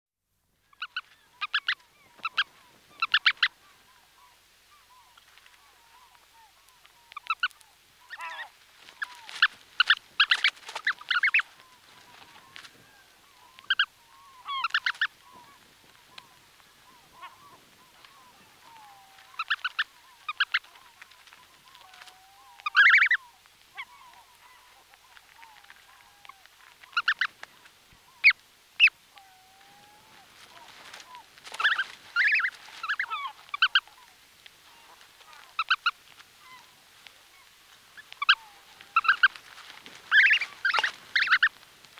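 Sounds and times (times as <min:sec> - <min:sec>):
goslings peeping: 0:00.7 - 0:41.9.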